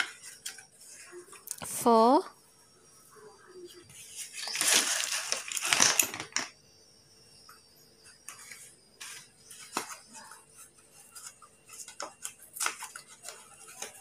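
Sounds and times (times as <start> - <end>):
pencils clattering onto paper plate: 4.2 - 6.5.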